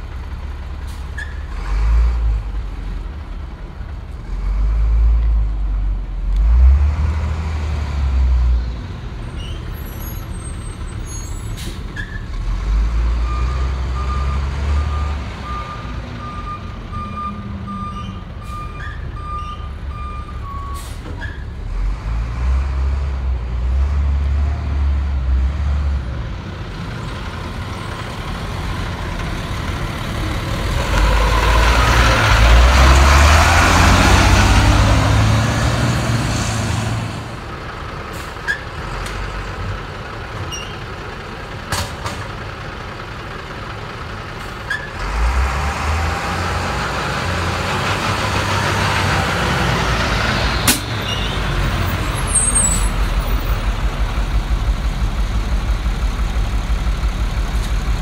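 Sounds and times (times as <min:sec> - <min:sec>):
garbage truck engine rumbling: 0:00.0 - 0:58.0.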